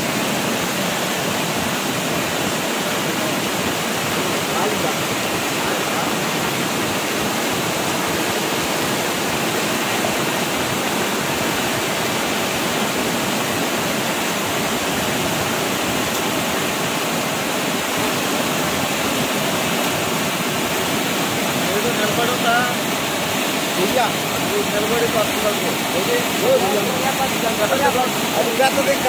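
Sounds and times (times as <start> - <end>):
floodwater rushing: 0.0 - 29.0.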